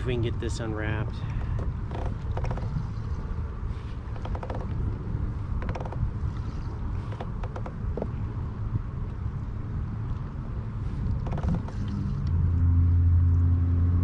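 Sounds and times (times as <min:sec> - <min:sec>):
gear creaking and clicking: 0:00.0 - 0:08.4, 0:10.0 - 0:12.6.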